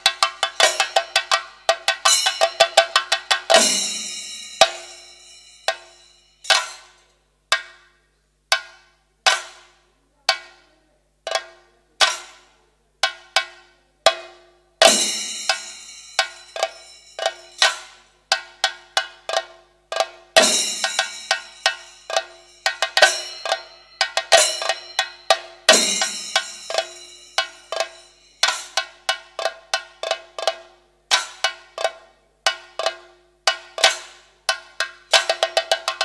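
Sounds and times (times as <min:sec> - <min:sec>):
metal hand cymbals clashing: 0:00.0 - 0:07.1, 0:14.8 - 0:18.1, 0:20.4 - 0:29.1.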